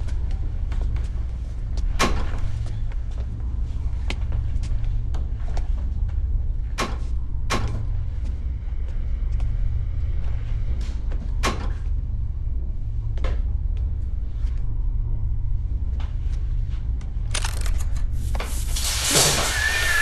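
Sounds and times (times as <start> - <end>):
steady low hum: 0.0 - 19.5
hiss of spraying water: 18.5 - 20.0.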